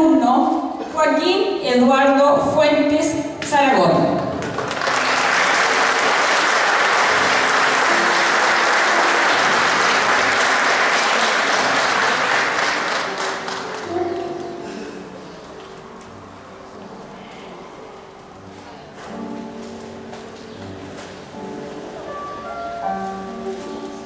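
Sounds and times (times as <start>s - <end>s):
audience applause: 4.4s - 14.4s.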